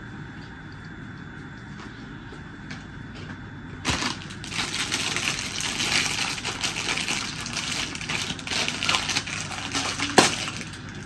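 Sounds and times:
paper wrappers crackling: 0:03.9 - 0:11.0.

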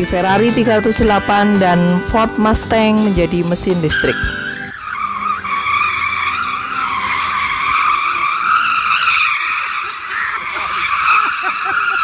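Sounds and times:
tyres squealing on concrete: 0:03.7 - 0:12.0.

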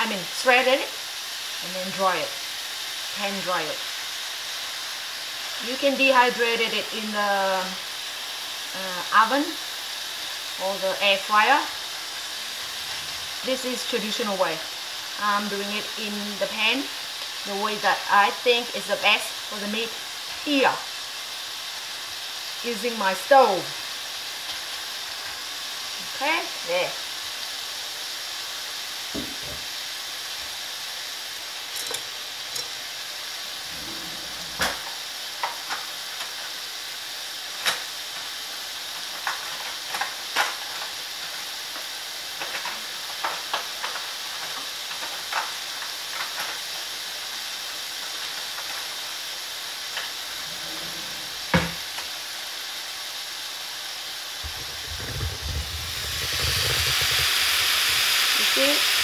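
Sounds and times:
pork sizzling in a frying pan: 0:00.0 - 0:59.0
low rumble: 0:54.4 - 0:57.4
oil popping: 0:54.4 - 0:58.3.

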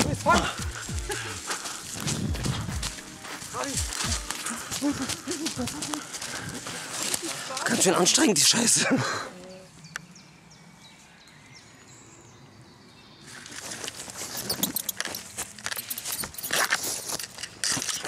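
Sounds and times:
dry leaves and twigs crackling: 0:00.0 - 0:08.8, 0:13.2 - 0:18.0.

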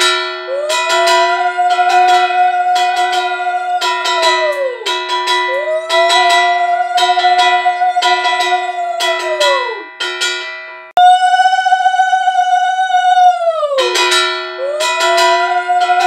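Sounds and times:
conch shell blown: 0:00.0 - 0:09.9, 0:13.6 - 0:16.0
hand bell ringing rapidly: 0:00.0 - 0:10.6.

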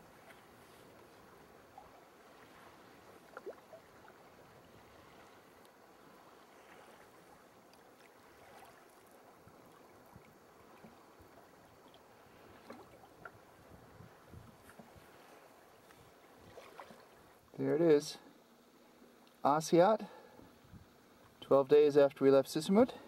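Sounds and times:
water lapping against kayak: 0:00.0 - 0:17.6
small splashes and drips: 0:01.8 - 0:13.4, 0:15.9 - 0:17.5.

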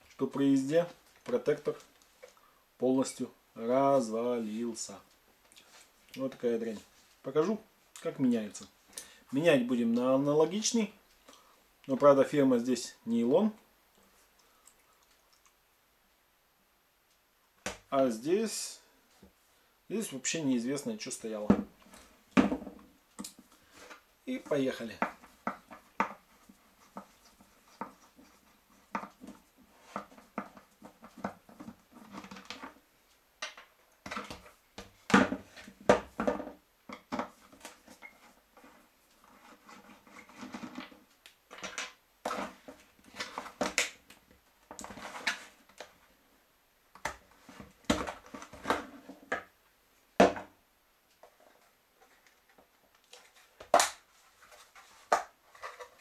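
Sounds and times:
plastic parts clicking and scraping: 0:36.9 - 0:44.0, 0:51.2 - 0:56.0.

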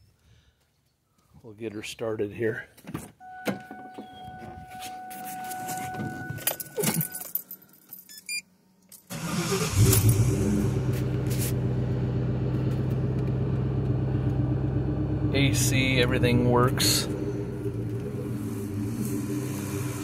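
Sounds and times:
keys jangling: 0:05.4 - 0:08.3
car engine starting and idling: 0:09.0 - 0:20.0.

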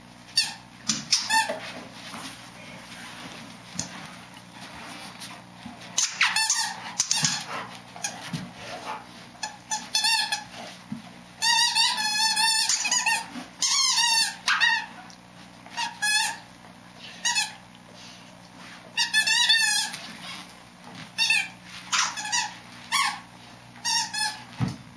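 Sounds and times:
squeaky dog toy squeaking: 0:11.4 - 0:14.9.

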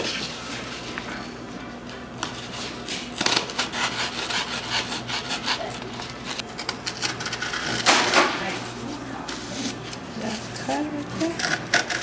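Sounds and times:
knife sawing through cardboard: 0:02.5 - 0:05.8.

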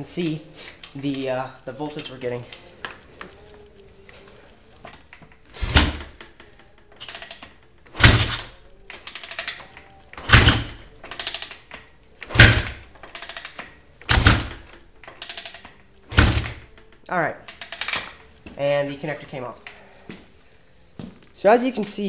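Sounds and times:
kick lever rattling: 0:04.9 - 0:06.4, 0:07.0 - 0:18.3
engine kick-start thumps: 0:05.6 - 0:06.2, 0:08.0 - 0:08.5, 0:10.2 - 0:10.8, 0:12.2 - 0:12.9, 0:14.0 - 0:14.7, 0:16.1 - 0:16.7.

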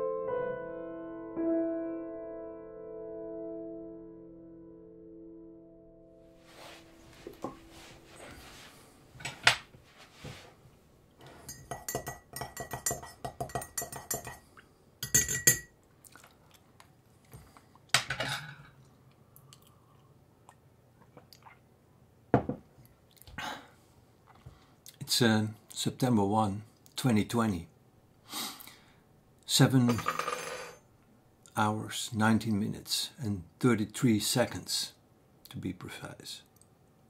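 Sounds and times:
teaspoon clinking on crockery: 0:15.0 - 0:15.7.

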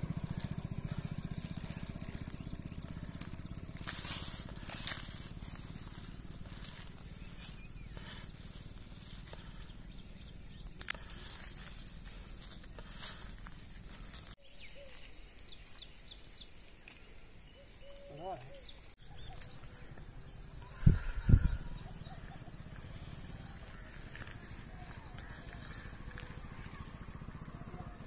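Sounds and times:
low steady rumble: 0:00.0 - 0:14.4.

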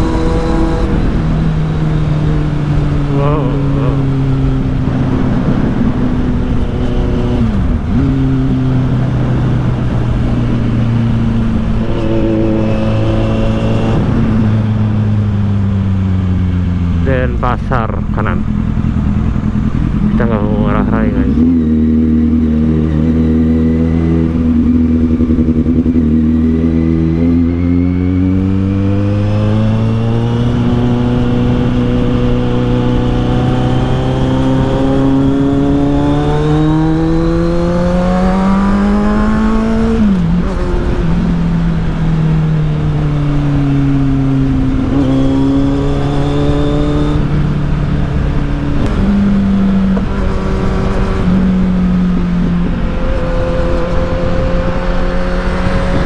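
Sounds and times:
motorcycle engine under throttle: 0:18.0 - 0:56.0.

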